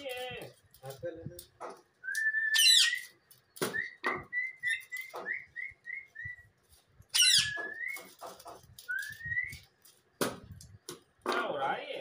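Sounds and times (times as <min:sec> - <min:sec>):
parrot whistling: 0:02.0 - 0:03.1, 0:03.7 - 0:06.4, 0:07.1 - 0:08.1, 0:08.9 - 0:09.6
parrot squawk: 0:02.5 - 0:03.1, 0:07.1 - 0:07.8.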